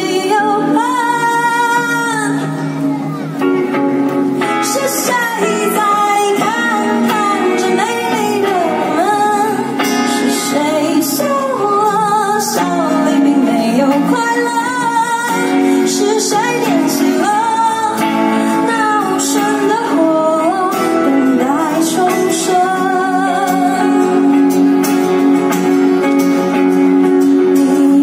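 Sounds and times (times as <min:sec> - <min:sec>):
woman singing: 0:00.0 - 0:02.8, 0:04.4 - 0:25.7, 0:27.2 - 0:28.0
acoustic guitar: 0:00.0 - 0:28.0
electric guitar: 0:00.0 - 0:28.0.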